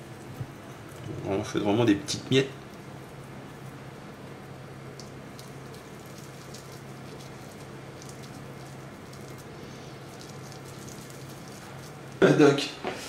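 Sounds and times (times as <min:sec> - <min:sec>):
electrical hum and hiss: 0:00.0 - 0:13.0
fingers crumbling fish flakes: 0:02.6 - 0:12.2.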